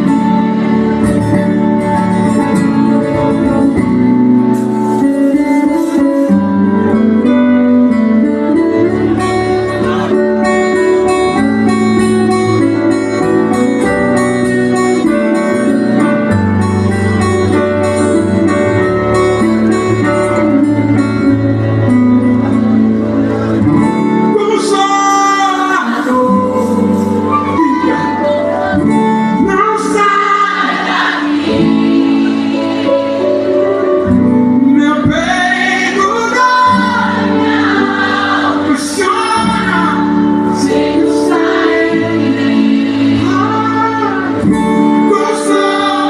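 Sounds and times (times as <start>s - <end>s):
acoustic guitar strumming: 0.0s - 46.0s
live gospel band music: 0.0s - 46.0s
person singing: 8.4s - 13.2s, 23.8s - 46.0s.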